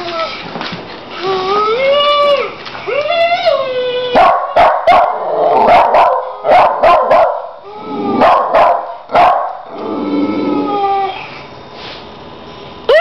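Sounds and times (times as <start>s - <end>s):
puppy barking sharply: 4.2s - 7.5s, 8.2s - 9.6s
dog whining: 7.6s - 8.7s, 9.7s - 11.5s.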